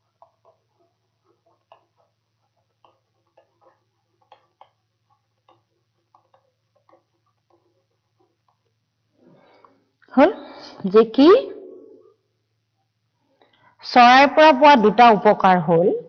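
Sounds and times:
stylus tapping on tablet: 0.0s - 9.7s.

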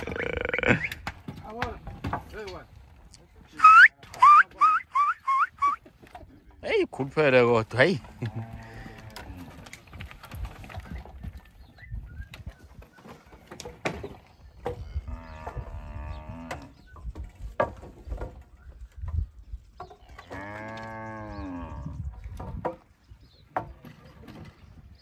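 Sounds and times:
cow mooing: 14.8s - 16.7s, 20.0s - 22.0s.

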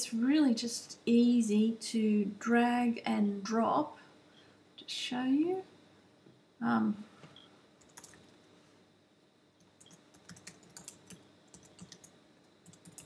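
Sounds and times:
typing on keyboard: 7.8s - 8.3s, 9.7s - 13.0s.

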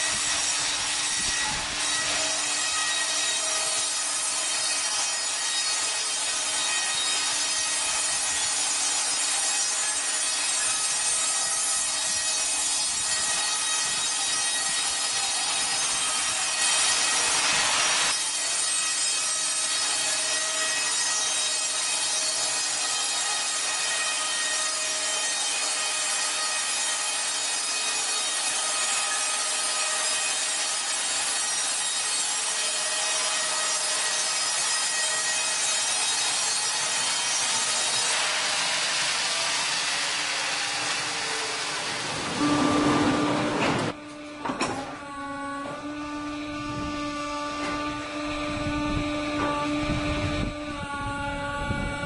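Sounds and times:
wood being sawn: 0.0s - 52.0s
thin even whine: 42.2s - 50.8s.

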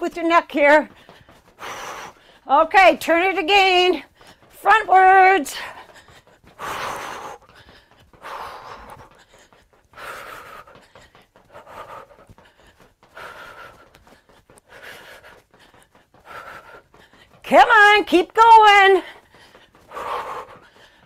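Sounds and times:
woman breathing hard: 0.9s - 2.5s, 4.0s - 4.6s, 5.4s - 17.5s, 19.0s - 21.0s.

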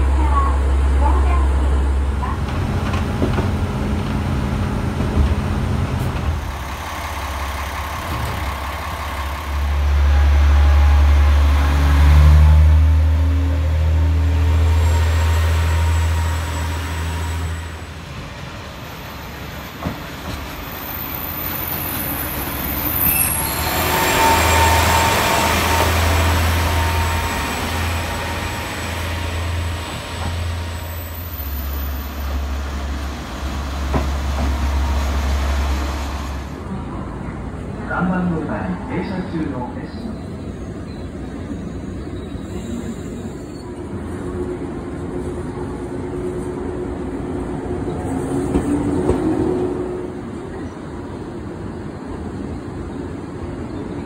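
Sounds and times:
diesel railcar engine rumble: 0.0s - 54.0s.

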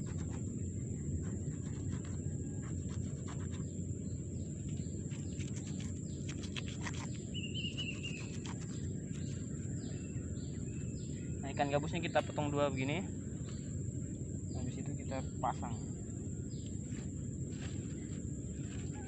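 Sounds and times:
low outdoor rumble: 0.0s - 19.0s
bird warbling call: 5.1s - 12.3s, 18.6s - 19.0s.

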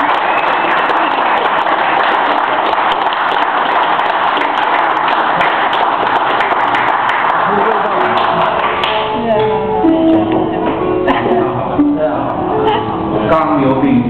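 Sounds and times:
audience applauding: 0.0s - 9.2s.

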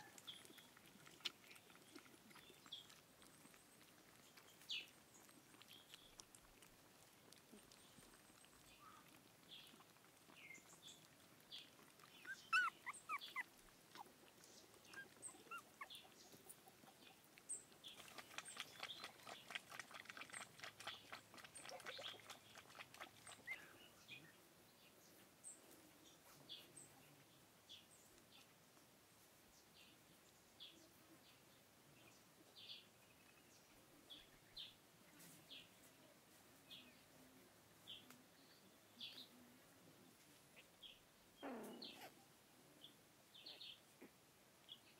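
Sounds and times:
puppies whimpering and squeaking: 12.0s - 17.0s.

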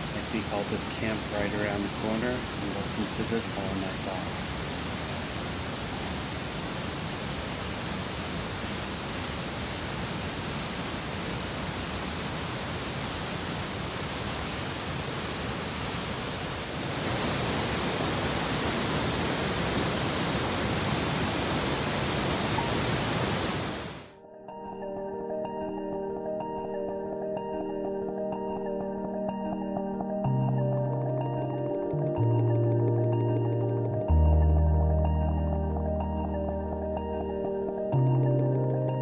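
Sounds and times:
waterfall rushing over boulders: 0.0s - 24.1s
whitewater rushing in rocky stream: 16.7s - 24.0s.

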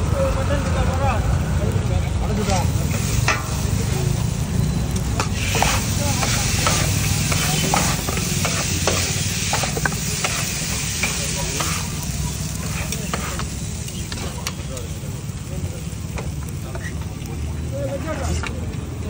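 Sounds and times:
chicken sizzling on a griddle: 0.0s - 19.0s
metal spatula scraping griddle: 2.5s - 14.4s.

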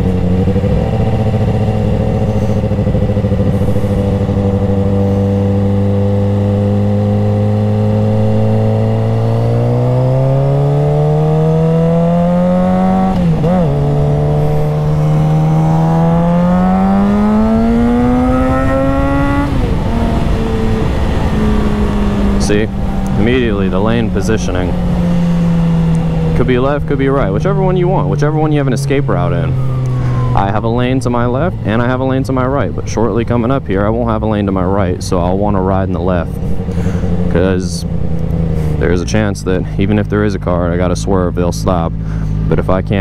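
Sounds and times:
motorcycle engine accelerating: 0.0s - 43.0s
wind rush: 17.0s - 28.0s.

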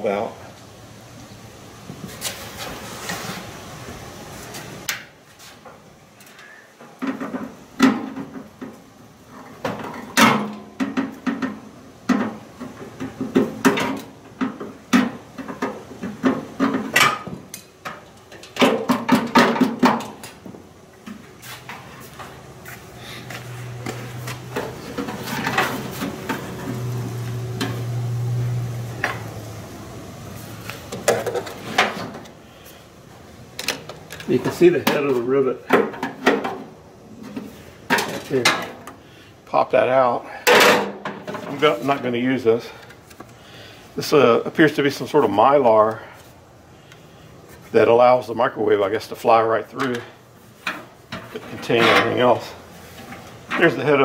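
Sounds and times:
knocks and clatter of casing: 9.6s - 20.4s, 30.9s - 32.3s.

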